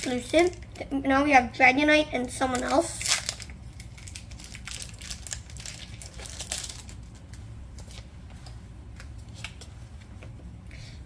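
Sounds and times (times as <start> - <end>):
foil wrapper crinkling and tearing: 2.5 - 8.1.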